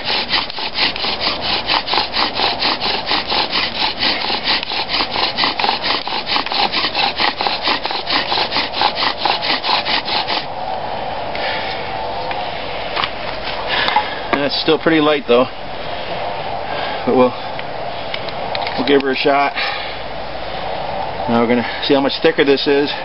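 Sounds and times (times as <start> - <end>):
bow drill spindle rasping: 0.0 - 10.5.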